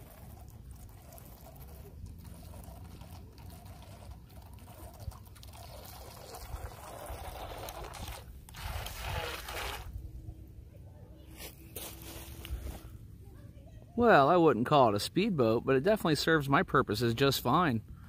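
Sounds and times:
toy jet ski splashing: 0:00.0 - 0:10.0.

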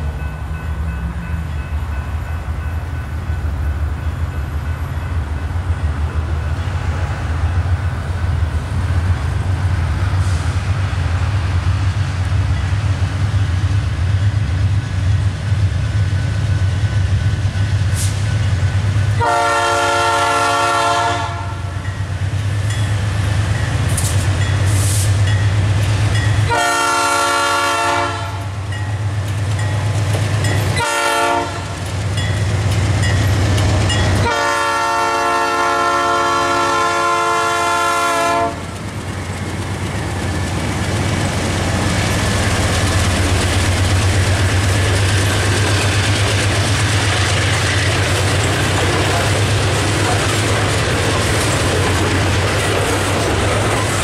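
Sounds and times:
locomotive air horn: 0:19.2 - 0:21.7, 0:26.5 - 0:28.5, 0:30.8 - 0:31.8, 0:34.2 - 0:38.6.

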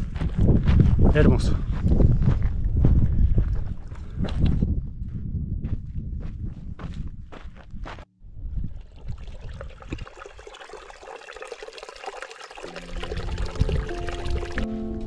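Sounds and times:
music with sustained notes: 0:12.7 - 0:15.0.

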